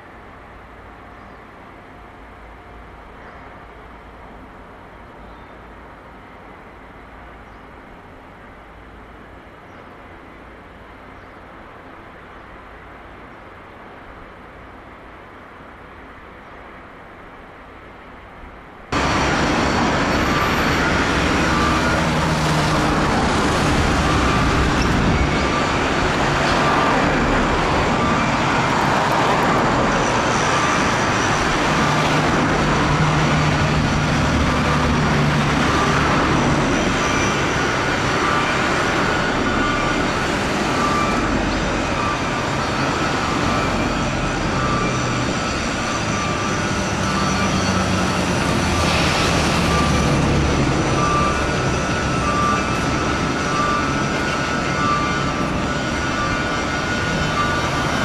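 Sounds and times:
shipyard machinery: 0.0 - 58.0
vehicle traffic: 18.9 - 58.0.

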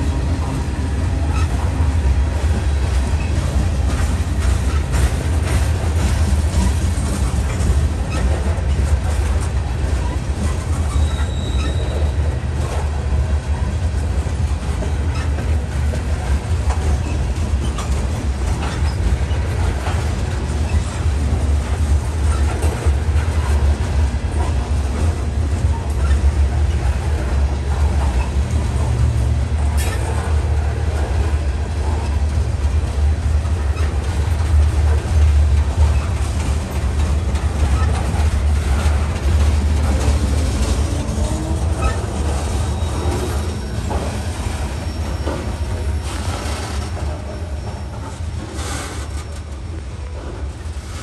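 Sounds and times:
freight train cars rumbling past: 0.0 - 51.0.

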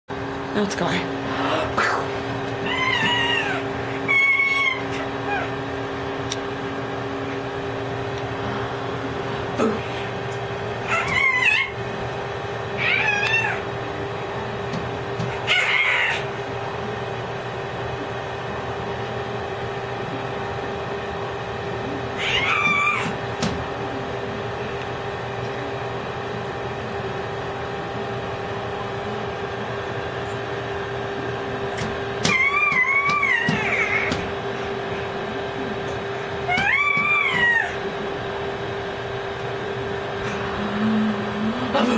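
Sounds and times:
baby squealing: 2.6 - 5.5, 10.9 - 11.8, 22.2 - 23.1, 32.2 - 34.2, 36.5 - 37.8.

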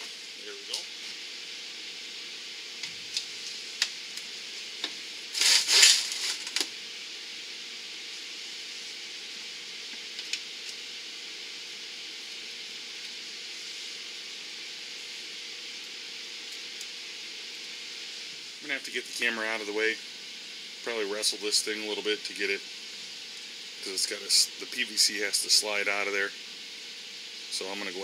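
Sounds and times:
steady hiss: 0.0 - 28.0
scraping rustle: 5.3 - 6.6.

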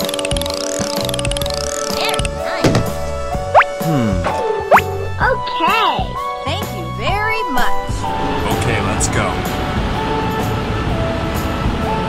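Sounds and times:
background music held notes: 0.0 - 12.0.

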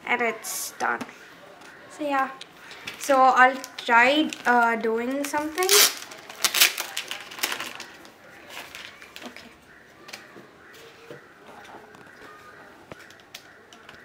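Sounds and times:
plastic packaging crinkling: 2.4 - 9.6.

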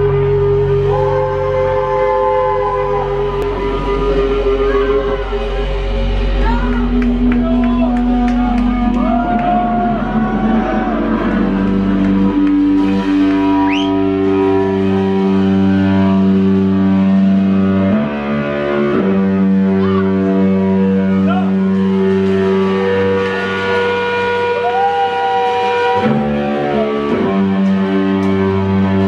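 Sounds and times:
electric guitar notes and chords: 0.0 - 29.0
live rock band playing: 8.0 - 29.0.

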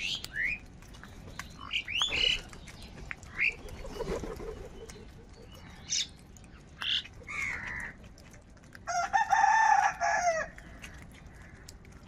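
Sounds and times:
crows cawing: 7.3 - 8.0.

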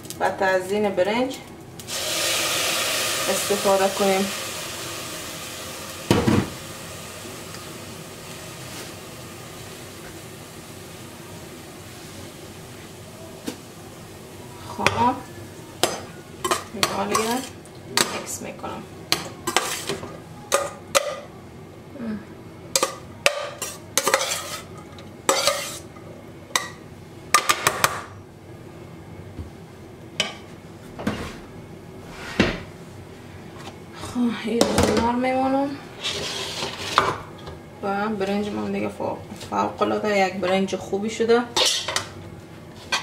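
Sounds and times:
metal spoon scraping saucepan: 23.6 - 24.7, 25.3 - 25.8.

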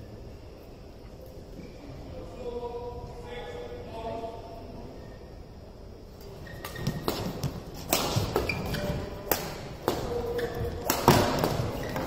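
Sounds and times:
shoes squeaking on court: 6.2 - 9.1, 9.9 - 12.0
rackets hitting shuttlecock: 6.6 - 12.0.

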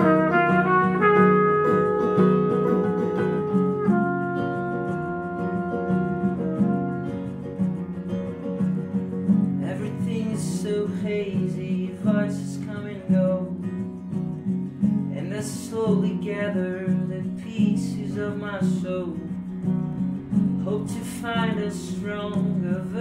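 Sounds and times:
banjo picking: 0.0 - 10.3
acoustic guitar strumming: 0.0 - 23.0.

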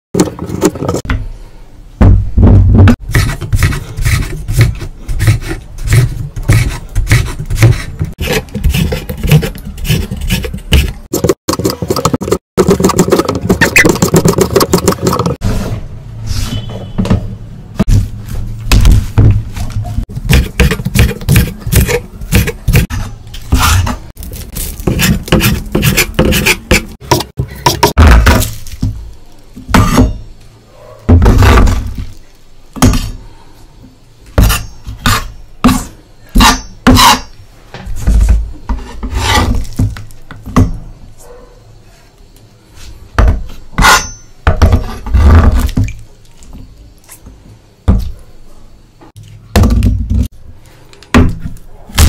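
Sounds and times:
knife scraping on board: 3.1 - 16.7, 20.3 - 24.1, 24.7 - 28.0, 38.7 - 39.7, 43.8 - 45.7
knife chopping on wooden board: 20.1 - 24.0.

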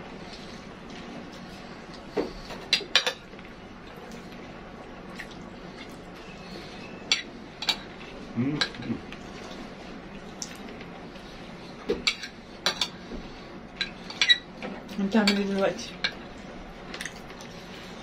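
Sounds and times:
low room hum: 0.0 - 18.0
spoons clinking and scraping on plates: 12.0 - 13.0, 13.8 - 14.5, 15.2 - 16.2.

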